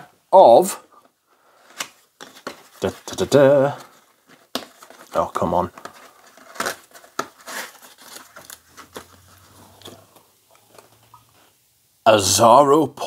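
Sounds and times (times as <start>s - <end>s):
cardboard box scraping and rustling: 5.8s - 10.1s.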